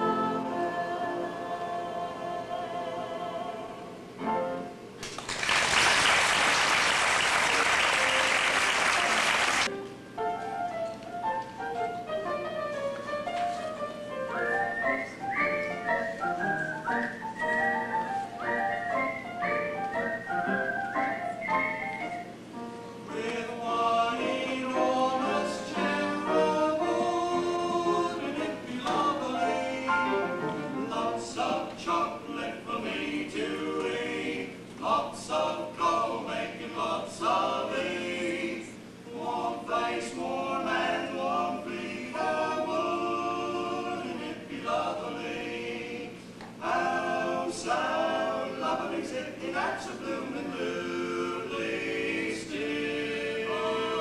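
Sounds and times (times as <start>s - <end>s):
male vocal quartet singing: 0.0s - 4.0s, 23.1s - 54.0s.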